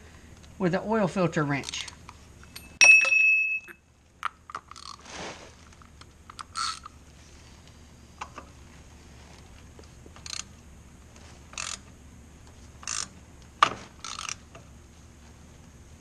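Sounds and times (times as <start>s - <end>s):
filter wrench ratcheting and scraping: 4.5s - 5.0s, 6.3s - 7.0s, 10.2s - 10.5s, 11.5s - 11.9s, 12.8s - 13.2s, 14.0s - 14.6s.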